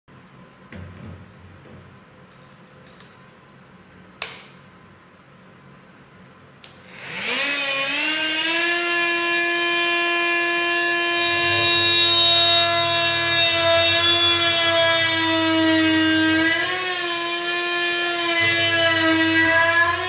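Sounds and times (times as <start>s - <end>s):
multi-tool motor whining: 6.8s - 20.0s.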